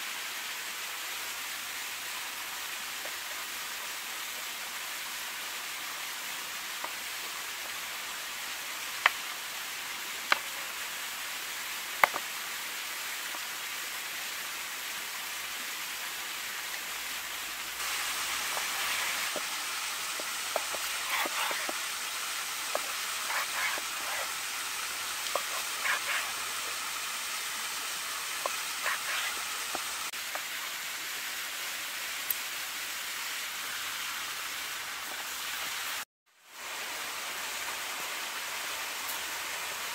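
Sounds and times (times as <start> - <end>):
small waterfall rushing: 0.0 - 39.9
knife slicing meat: 20.2 - 21.8, 22.7 - 24.4.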